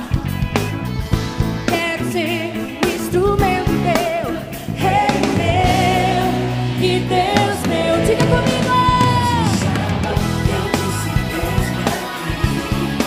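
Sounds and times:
band playing: 0.0 - 13.0
woman singing with vibrato: 3.1 - 10.7
drum hits: 7.6 - 10.8.

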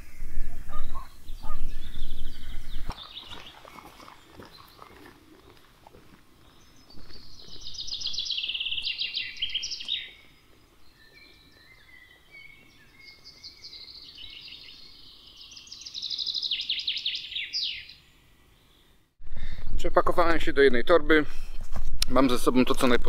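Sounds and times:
faint bird calls: 0.0 - 5.2
songbird singing: 0.0 - 19.1.

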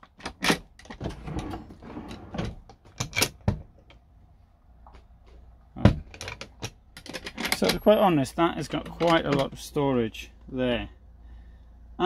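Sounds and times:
latch clicks and knocks: 0.0 - 1.2, 5.8 - 7.8, 8.7 - 9.6
drawer sliding on runners: 0.4 - 3.6.

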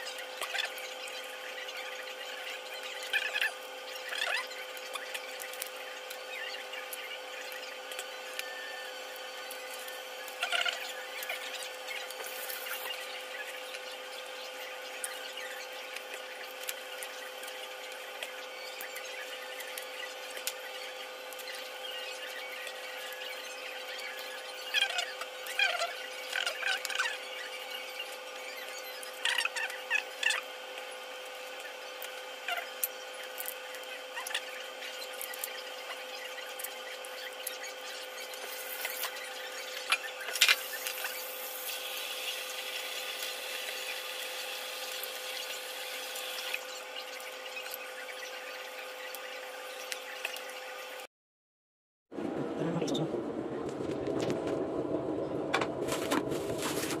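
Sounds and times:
range hood fan whine: 0.0 - 51.1, 52.2 - 57.0
steady hum: 52.2 - 57.0.

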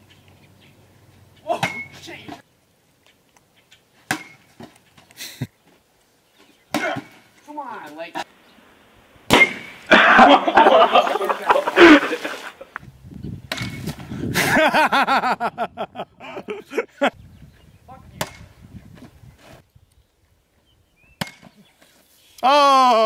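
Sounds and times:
young people laughing: 9.9 - 12.8, 14.3 - 17.2.

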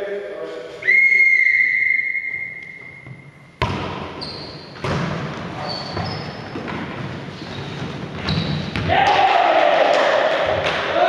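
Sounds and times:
referee's whistle blast: 0.8 - 3.0
shoe squeaks: 0.8 - 4.8, 5.5 - 6.6, 7.3 - 8.7
volleyball being hit: 3.6 - 4.2, 4.8 - 5.4.

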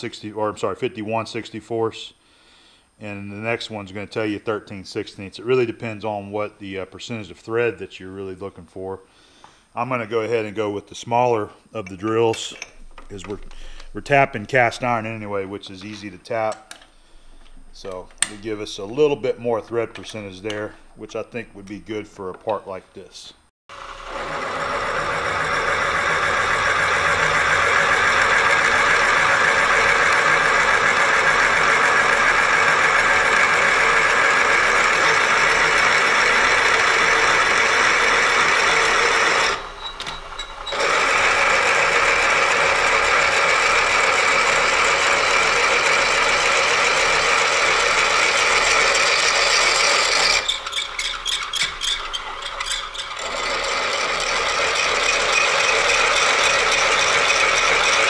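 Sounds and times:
drill cutting hiss: 23.7 - 58.0
milling machine whine: 23.7 - 58.0.

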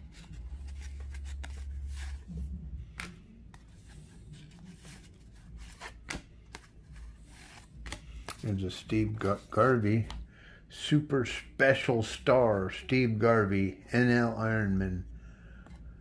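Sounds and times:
low hum: 0.0 - 5.7
cards being flipped through: 0.0 - 10.2.

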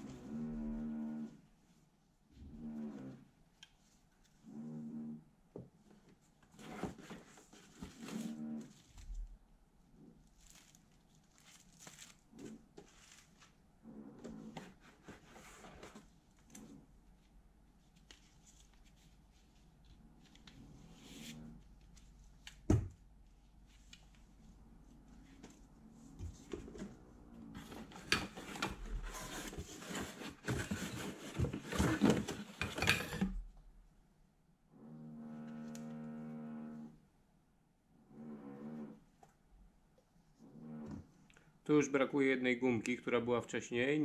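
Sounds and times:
cardboard scraping and rustling: 6.5 - 9.2, 10.2 - 13.6, 14.2 - 16.1, 26.3 - 33.3
plastic bag and paper rustling: 10.3 - 13.6.

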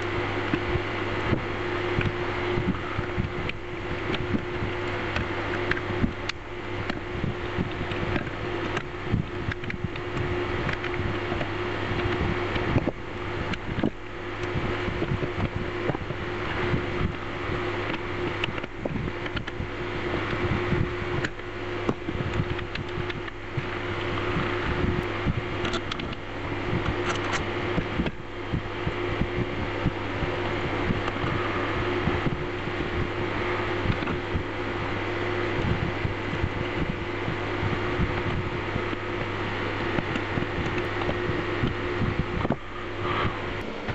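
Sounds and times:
steady hum: 0.0 - 43.9.

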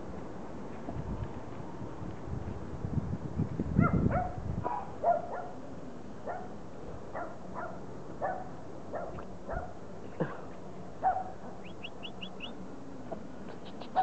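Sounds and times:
low microphone rumble: 0.0 - 4.7
puppies yipping: 13.5 - 14.0.

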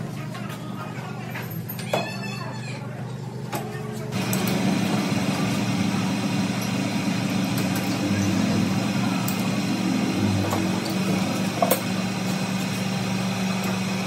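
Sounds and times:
lathe motor humming: 4.1 - 14.0.

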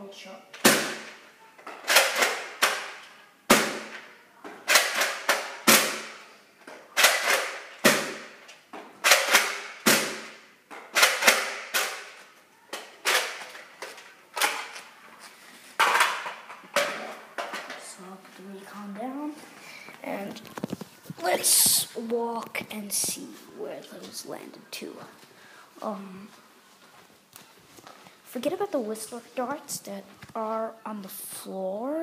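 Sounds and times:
toy dart blaster clacks and thumps: 9.0 - 12.2.

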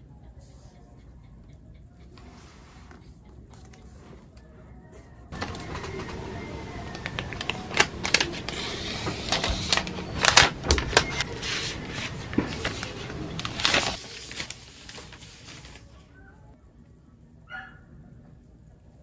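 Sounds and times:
paper rustling and scraping: 5.4 - 16.0.

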